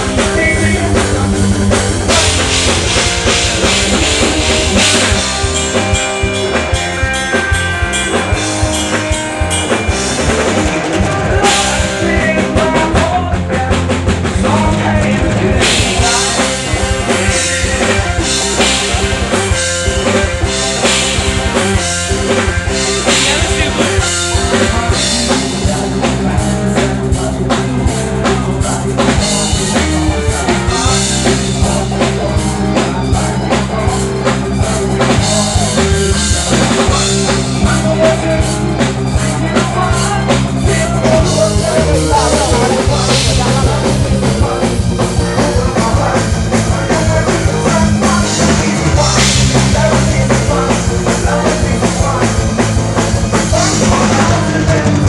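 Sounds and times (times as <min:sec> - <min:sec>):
bass drum and snare hits: 0:00.0 - 0:07.0
live rock band playing: 0:00.0 - 0:55.0.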